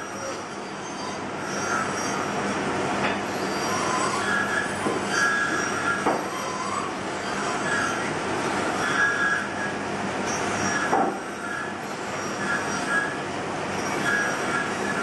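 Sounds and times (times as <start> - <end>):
squeaking cuts: 13.8 - 15.0.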